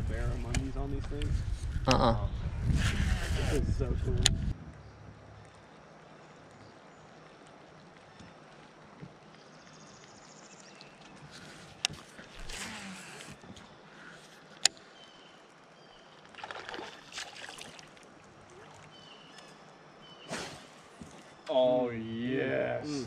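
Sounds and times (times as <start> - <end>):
water lapping and sloshing: 10.7 - 21.4.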